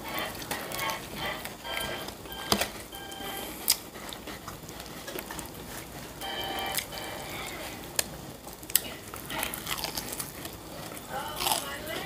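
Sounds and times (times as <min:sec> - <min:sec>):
faint background music: 0:05.0 - 0:12.0
finger licking and chewing: 0:08.0 - 0:11.8.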